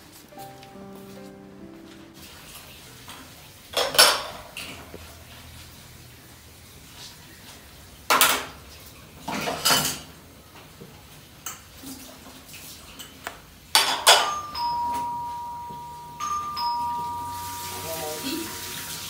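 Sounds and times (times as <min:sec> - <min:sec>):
dishes and pots clattering: 0:03.7 - 0:04.9, 0:09.2 - 0:10.2, 0:12.9 - 0:15.1
doorbell chime two tones: 0:14.1 - 0:19.0.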